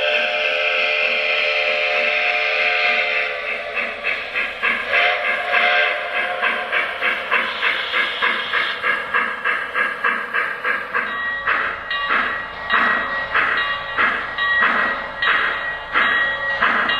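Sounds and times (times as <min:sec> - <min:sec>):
steam whistle blowing: 0:00.0 - 0:04.2, 0:04.8 - 0:08.7
steam locomotive chuffs: 0:00.0 - 0:16.9.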